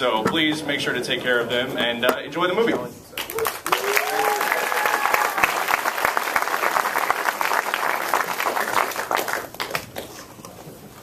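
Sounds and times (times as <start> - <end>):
audience applauding: 3.2 - 10.2.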